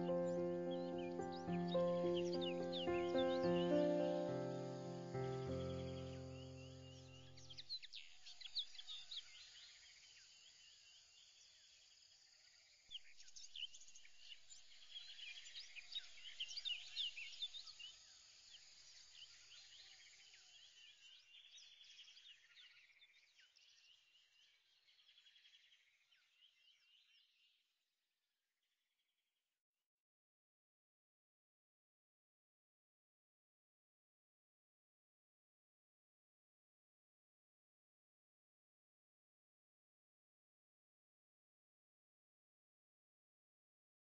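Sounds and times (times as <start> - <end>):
small birds chirping and trilling: 0.0 - 27.6.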